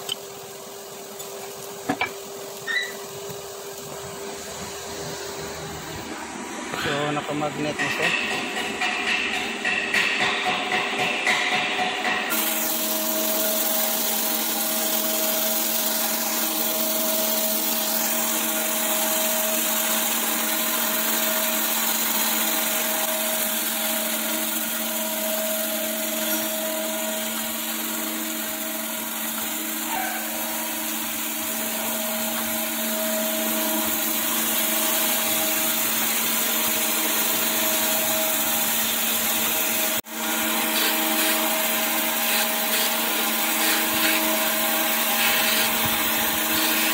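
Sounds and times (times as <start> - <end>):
motor hum with steady tones: 0.0 - 9.2, 12.3 - 46.9
grinding hiss: 0.0 - 46.9.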